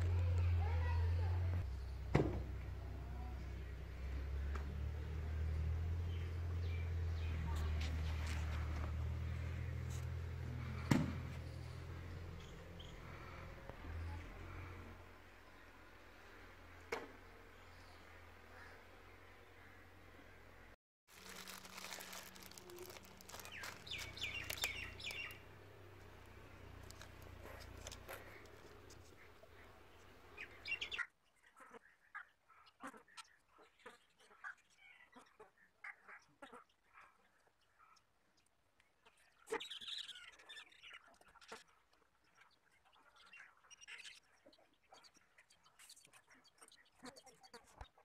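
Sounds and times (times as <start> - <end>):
plastic bag crinkling: 21.1 - 25.4, 26.7 - 29.1
bird chirping falling calls: 21.2 - 25.5
faint high chirping calls: 21.2 - 25.6, 26.2 - 47.8.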